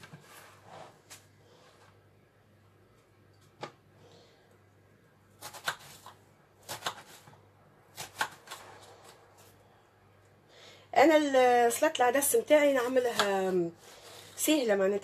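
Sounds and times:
knife cutting onion: 5.3s - 9.6s.

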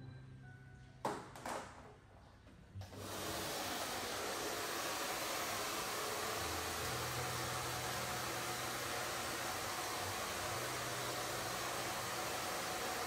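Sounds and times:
hair dryer blowing: 2.8s - 13.0s.

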